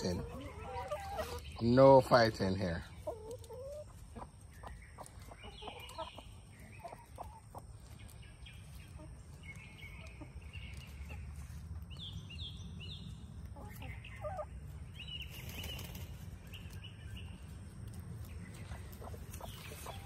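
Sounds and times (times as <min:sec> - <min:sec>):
hens high calls: 0:00.0 - 0:01.7
hens clucking: 0:00.0 - 0:12.0, 0:12.7 - 0:20.0.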